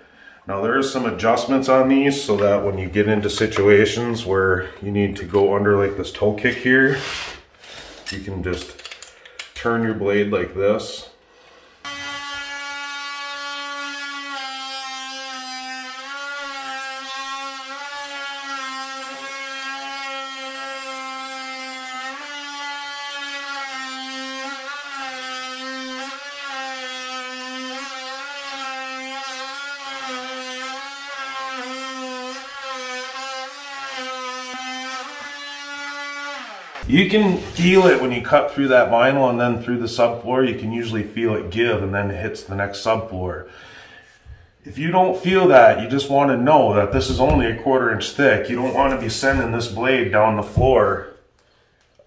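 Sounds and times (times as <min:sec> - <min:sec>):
multi-tool cutting vinyl floor: 0:02.1 - 0:08.2, 0:11.4 - 0:38.9, 0:46.7 - 0:51.3.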